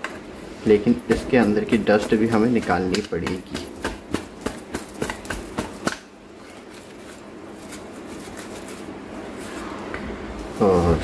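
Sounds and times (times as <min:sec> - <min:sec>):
cloth rubbing: 0:06.4 - 0:11.0.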